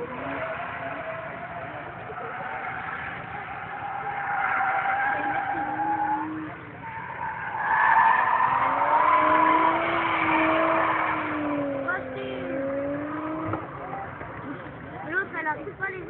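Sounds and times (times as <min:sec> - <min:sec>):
tyres squealing: 0:00.0 - 0:15.3
car engine revving: 0:00.0 - 0:16.0.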